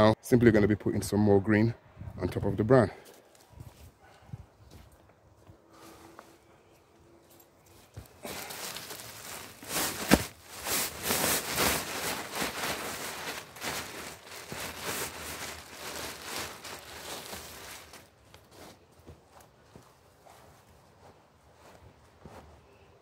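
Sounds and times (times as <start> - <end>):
plastic bag crinkling and rustling: 8.1 - 18.2.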